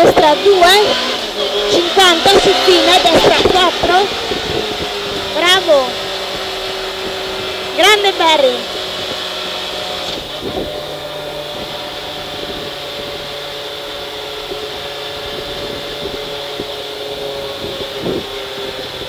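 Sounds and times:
car engine running from inside cabin: 0.0 - 19.0.

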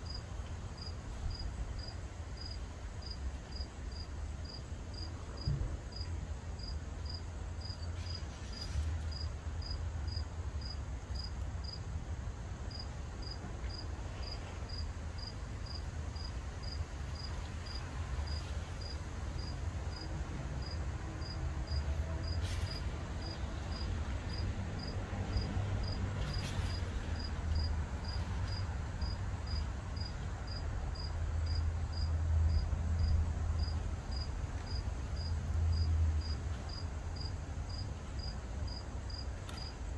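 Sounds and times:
cricket chirping: 12.7 - 26.5, 27.2 - 39.8.

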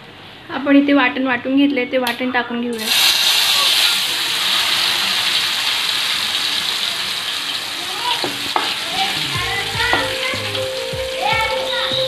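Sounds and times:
paste sizzling in hot oil: 2.8 - 11.9.

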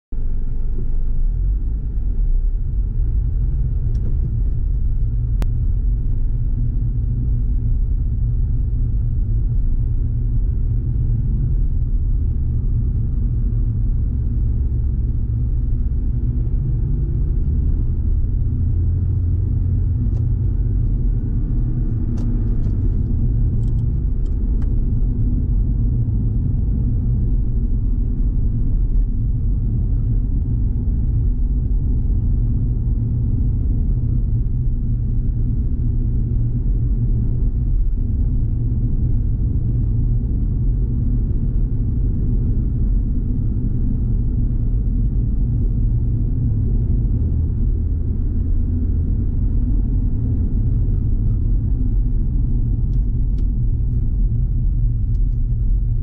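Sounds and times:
car road and engine noise: 0.1 - 56.0.

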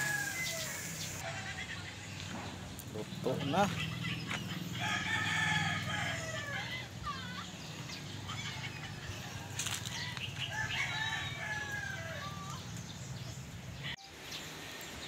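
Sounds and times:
rooster crowing: 0.0 - 1.2, 4.8 - 6.9, 10.0 - 12.5.

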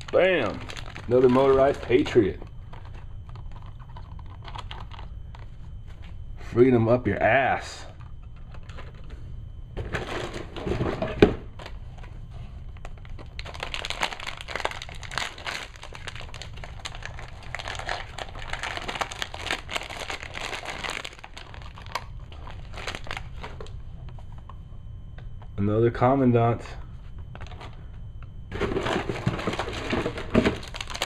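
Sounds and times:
plastic packaging crinkling: 0.0 - 5.6, 12.8 - 23.7, 28.5 - 31.0.

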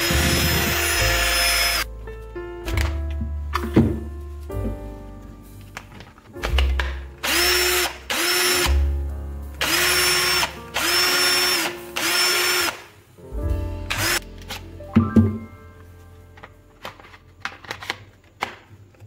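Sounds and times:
cordless drill whirring: 0.0 - 1.8, 7.2 - 8.6, 9.6 - 12.8, 14.0 - 14.2.

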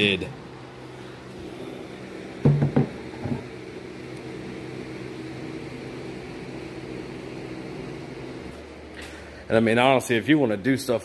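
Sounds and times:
background hum: 0.0 - 11.0
wooden board knocking on workbench: 2.4 - 3.4.

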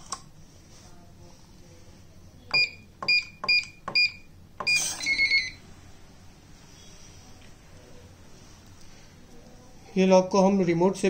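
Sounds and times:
keypad beeps: 2.5 - 5.6.

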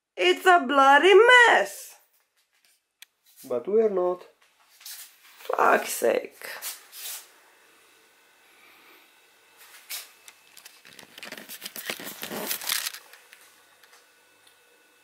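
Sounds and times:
camera handling rustling and knocking: 10.5 - 13.3.

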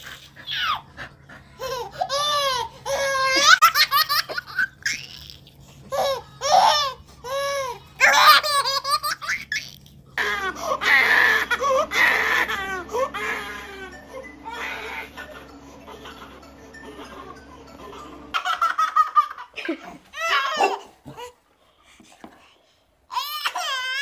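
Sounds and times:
baby laughing: 0.0 - 21.4.

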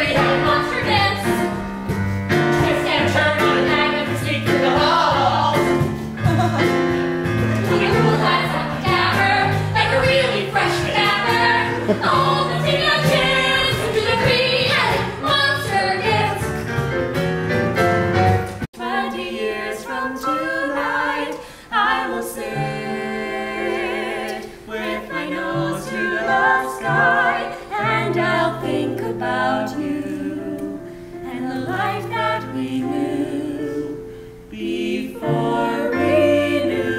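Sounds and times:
group singing show tune: 0.0 - 16.6, 18.8 - 36.9
keyboard accompaniment: 0.0 - 18.7.

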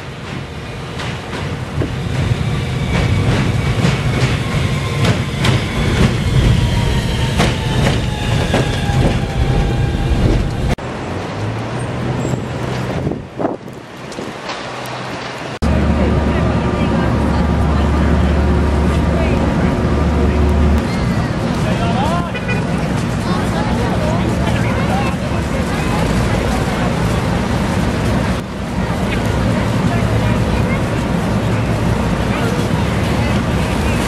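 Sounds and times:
train wheels clacking over rail joints: 0.0 - 10.6
train whine sliding down in pitch: 2.2 - 10.8.

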